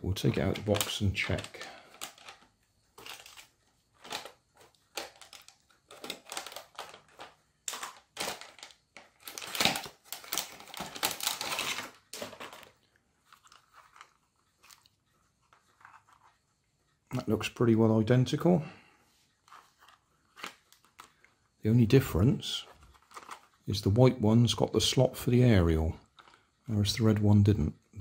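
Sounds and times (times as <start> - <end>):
plastic packaging crinkling: 0.1 - 16.4, 22.6 - 23.7, 26.0 - 26.6.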